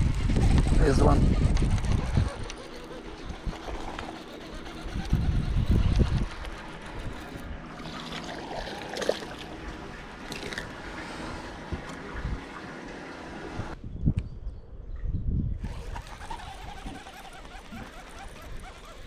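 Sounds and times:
wind rumble on microphone: 0.0s - 8.1s, 10.7s - 12.5s, 13.5s - 19.0s
water splashing against boat: 7.0s - 13.1s.

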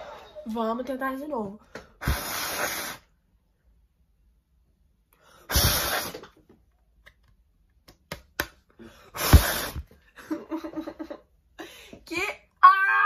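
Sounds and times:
breath blown onto microphone: 2.0s - 3.1s, 5.5s - 6.3s, 9.1s - 9.9s.

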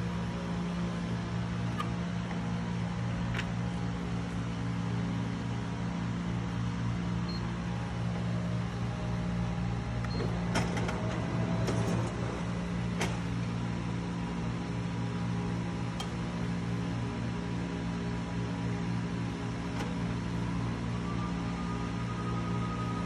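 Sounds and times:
duplicator machine hum: 0.0s - 23.0s
machine clicks and clatter: 10.1s - 12.4s.

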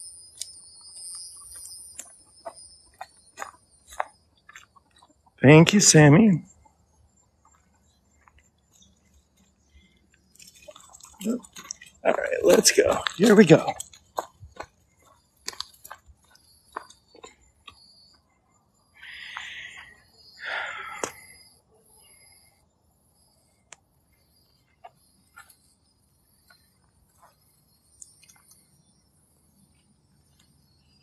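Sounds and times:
birds: 0.0s - 31.0s
insects: 0.0s - 31.0s
footsteps on dirt and twigs: 0.3s - 5.2s, 10.2s - 17.9s.

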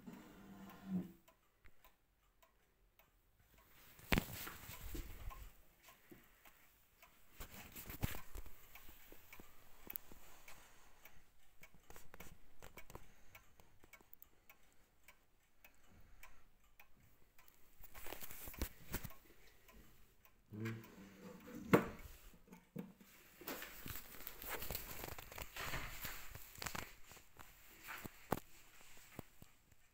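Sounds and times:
wall clock ticking: 0.0s - 29.9s
rustling handling noise: 17.8s - 19.2s, 23.0s - 29.6s.

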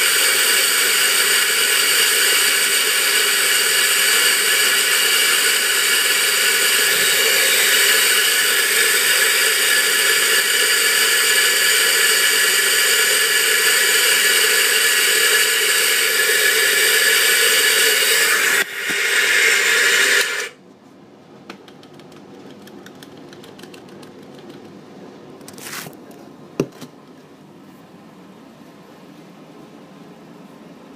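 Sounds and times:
electric coffee grinder whining: 0.0s - 20.6s.

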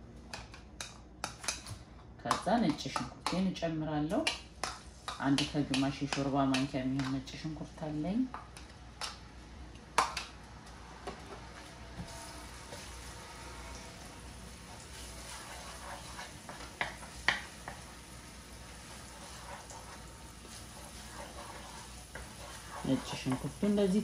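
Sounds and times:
garlic sizzling in oil: 12.0s - 24.0s.

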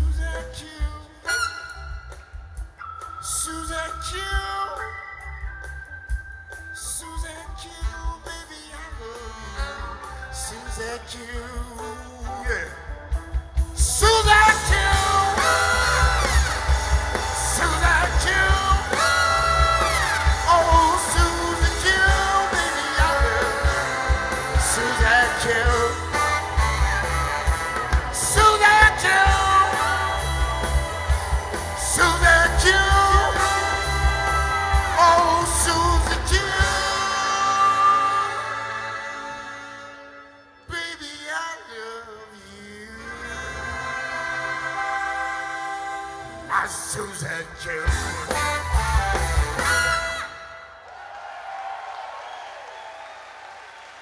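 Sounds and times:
male lead vocal: 0.0s - 1.6s, 3.1s - 5.4s, 6.8s - 48.6s
drums: 0.0s - 41.2s, 42.9s - 54.0s
bass: 0.0s - 50.7s
horn section: 0.3s - 2.6s, 7.8s - 51.0s
electric guitars: 8.7s - 40.7s, 42.9s - 50.6s.

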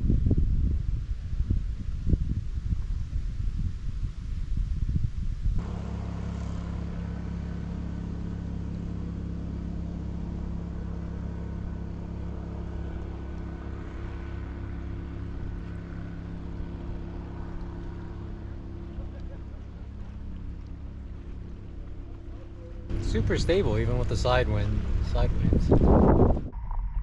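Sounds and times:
water noise: 0.0s - 27.0s
wind: 0.0s - 27.0s
small boat motor humming: 5.6s - 27.0s.

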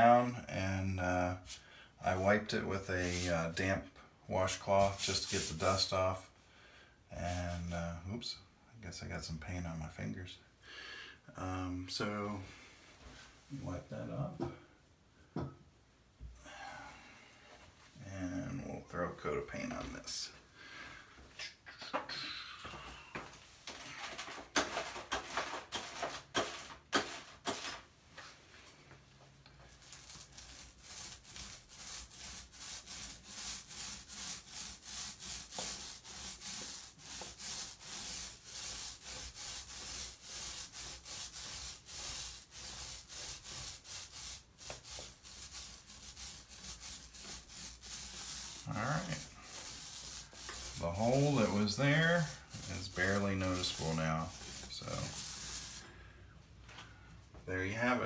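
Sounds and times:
paint roller rubbing on wall: 1.2s - 3.7s, 4.4s - 6.0s, 23.7s - 27.9s, 29.7s - 56.0s.

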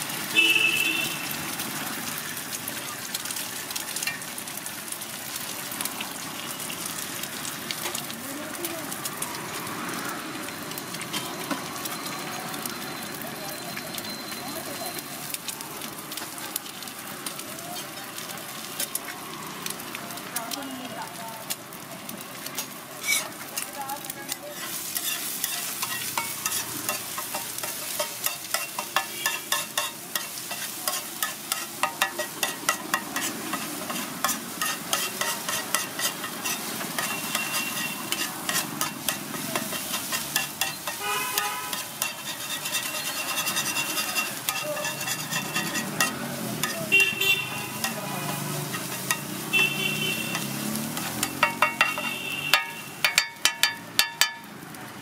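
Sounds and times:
egg and oil sizzling: 0.0s - 55.0s
metal spatula clanking and scraping: 4.0s - 4.3s, 22.6s - 54.5s.

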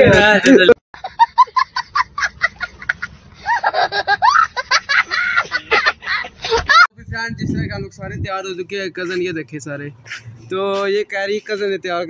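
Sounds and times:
child laughing: 1.1s - 6.9s.

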